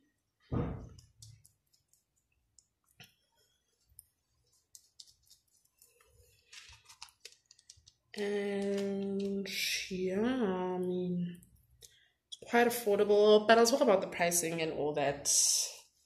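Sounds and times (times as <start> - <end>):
fingers rustling in hair: 3.6 - 8.0.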